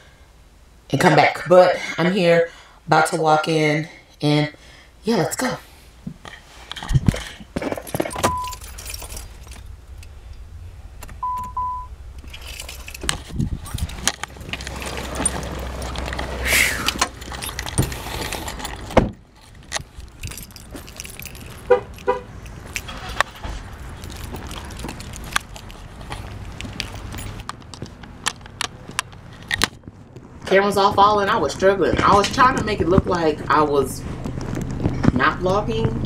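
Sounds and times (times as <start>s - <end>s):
keys jangling: 6.8s - 10.4s, 12.2s - 29.7s
low cabin rumble: 6.8s - 36.0s
short electronic beeps: 8.1s - 8.6s, 11.2s - 12.0s.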